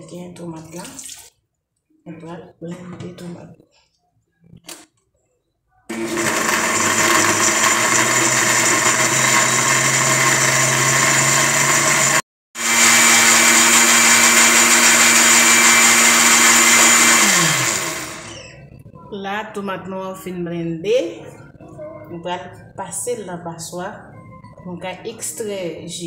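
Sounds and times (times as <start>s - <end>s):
blender running: 5.9s - 18.6s.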